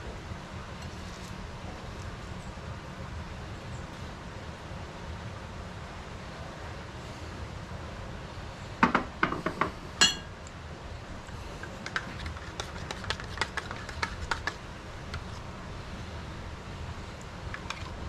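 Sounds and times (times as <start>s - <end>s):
ceramic bowl clinking on metal: 10.0s - 10.3s.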